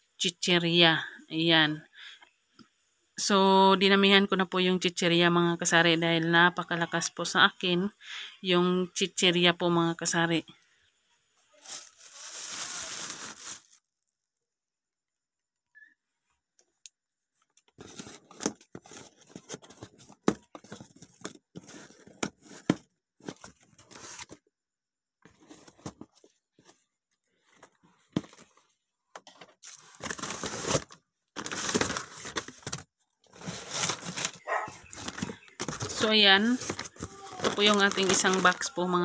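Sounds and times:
cardboard and plastic crinkling: 11.5s - 14.0s, 17.7s - 24.5s, 25.2s - 28.8s, 29.6s - 39.0s
scraping and rustling: 29.6s - 38.7s.

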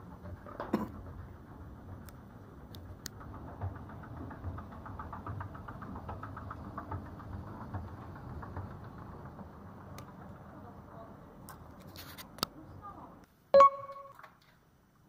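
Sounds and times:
escalator machine hum: 0.0s - 11.7s
escalator steps clicking: 0.0s - 12.5s.

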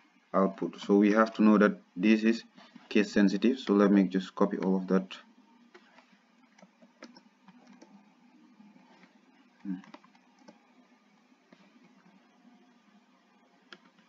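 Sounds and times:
keyboard and mouse clicks: 5.7s - 8.0s, 8.9s - 10.6s, 13.7s - 14.0s.

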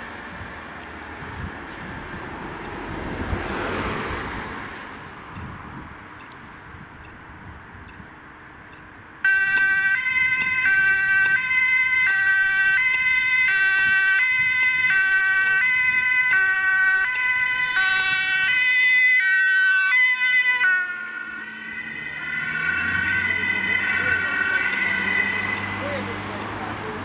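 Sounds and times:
two-tone ambulance siren: 9.2s - 26.9s.

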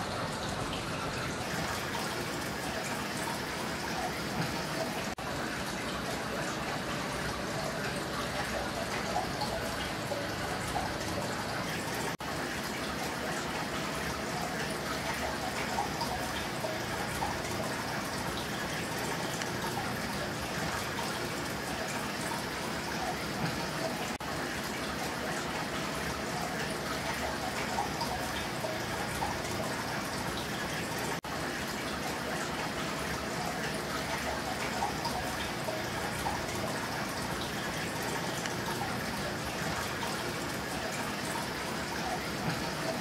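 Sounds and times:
aquarium water trickling and bubbling: 0.0s - 43.0s
small water drips: 0.0s - 43.0s.

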